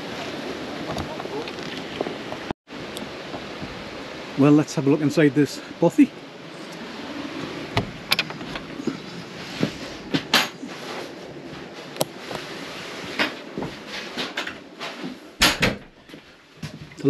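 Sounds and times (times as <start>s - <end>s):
steady hiss: 2.8s - 15.5s
footsteps: 7.8s - 15.2s.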